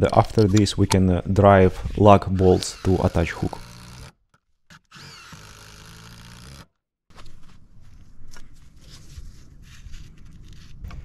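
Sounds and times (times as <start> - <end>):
cordless drill running: 1.8 - 6.7.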